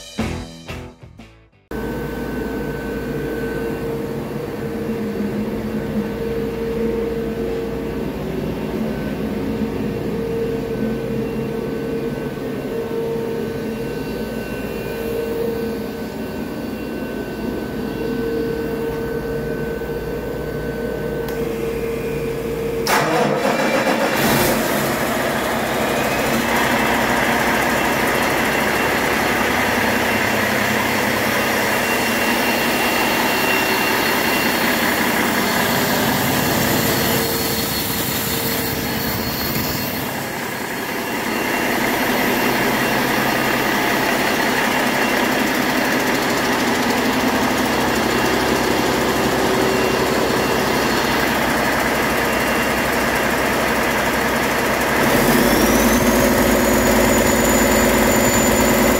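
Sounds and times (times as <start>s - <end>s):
faint high whine: 1.7s - 22.9s, 24.9s - 58.9s
diesel engine idling: 21.5s - 39.3s, 40.0s - 58.9s.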